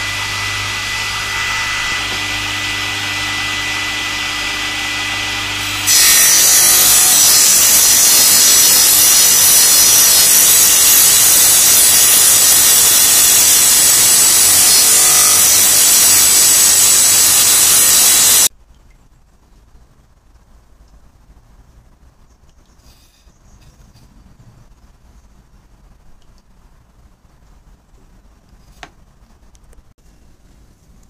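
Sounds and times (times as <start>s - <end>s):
saw blade cutting wood: 0.0s - 18.5s
table saw running: 0.0s - 18.5s.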